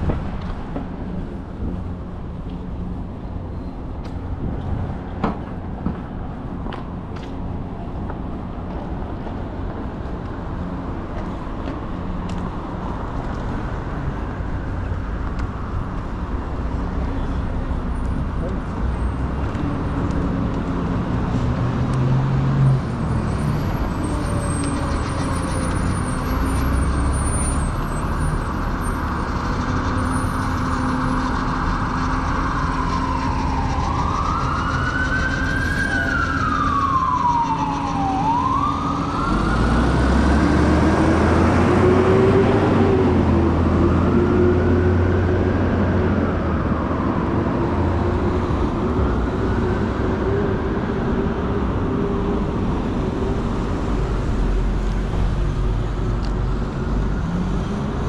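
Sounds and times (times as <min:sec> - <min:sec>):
street traffic: 0:00.0 - 0:58.0
emergency siren wailing: 0:18.4 - 0:55.1.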